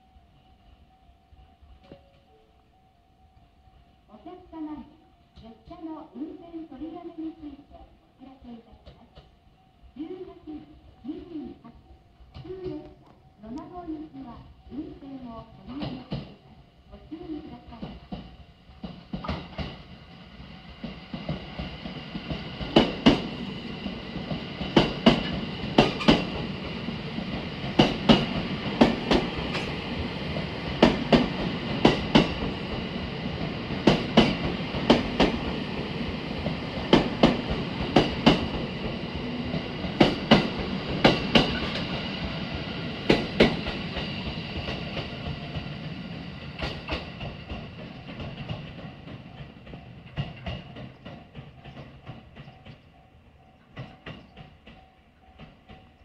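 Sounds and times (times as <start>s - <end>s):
train running rumble: 17.1s - 56.0s
train wheels clacking over joints: 17.7s - 56.0s.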